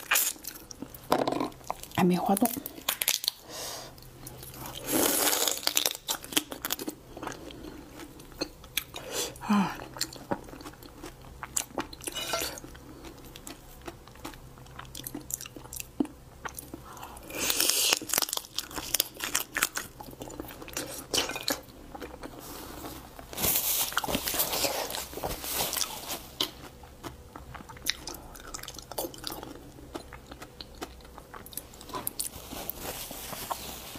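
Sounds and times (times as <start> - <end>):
chewing: 9.8 - 23.3, 23.9 - 33.9.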